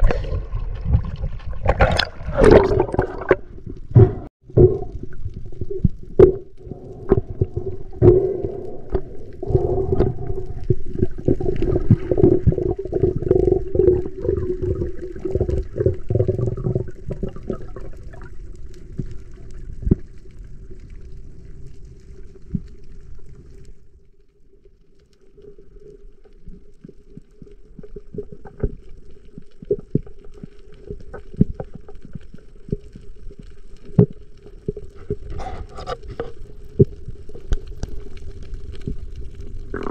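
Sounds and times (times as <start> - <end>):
underwater rushing water: 0.0 - 23.4, 36.9 - 39.9.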